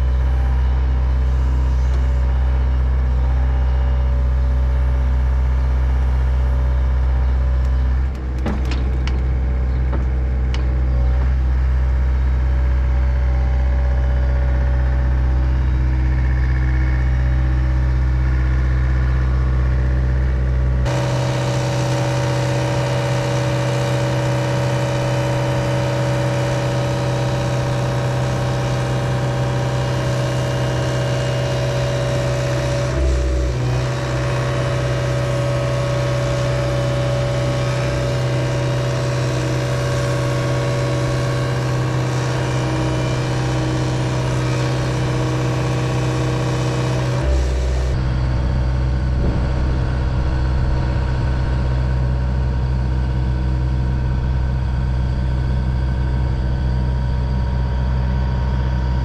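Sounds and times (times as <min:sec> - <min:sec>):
diesel excavator engine running: 0:00.0 - 0:59.0
hydraulics under load: 0:07.2 - 0:12.4.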